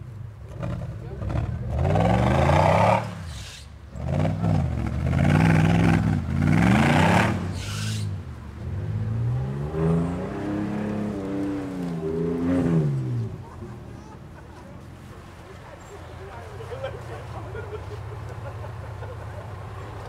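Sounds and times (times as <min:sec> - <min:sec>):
car engine revving: 0:00.5 - 0:13.6.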